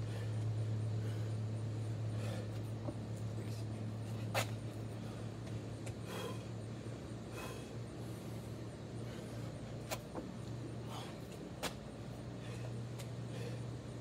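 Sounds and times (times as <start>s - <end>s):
person breathing heavily: 0.0s - 2.8s, 4.8s - 9.8s, 10.7s - 11.5s, 12.2s - 14.0s
steady low hum: 0.0s - 14.0s.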